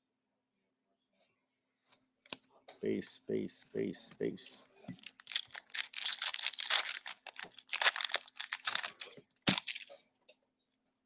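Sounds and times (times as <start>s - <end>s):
wrapper tearing and crinkling: 5.0s - 10.0s.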